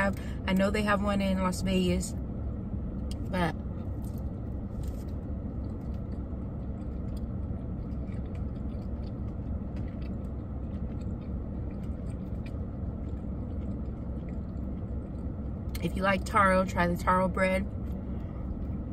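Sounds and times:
car engine rumble: 0.0s - 18.9s
chewing bread: 3.8s - 16.3s.

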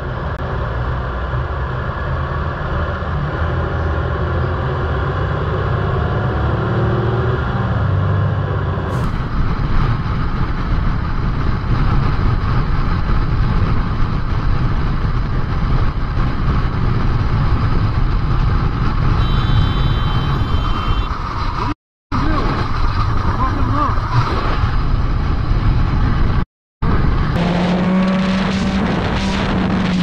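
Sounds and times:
road noise: 0.0s - 30.0s
motorcycle engine: 8.9s - 21.8s
wind rushing on microphone: 8.9s - 27.4s.

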